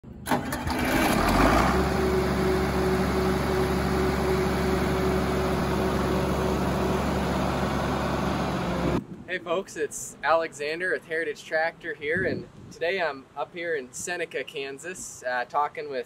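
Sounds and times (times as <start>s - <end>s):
diesel tractor engine idling: 0.2s - 9.0s.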